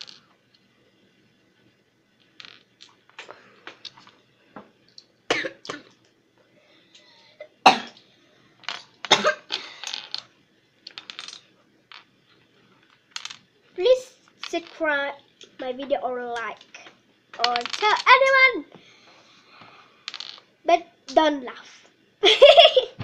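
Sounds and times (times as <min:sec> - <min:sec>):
plastic toy pieces clicking: 0:17.4 - 0:18.4.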